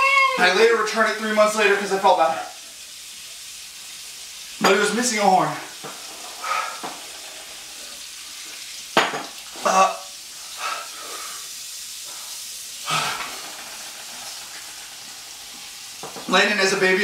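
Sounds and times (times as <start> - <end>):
background hiss: 0.0 - 17.0
people gasping in pain: 12.8 - 13.6.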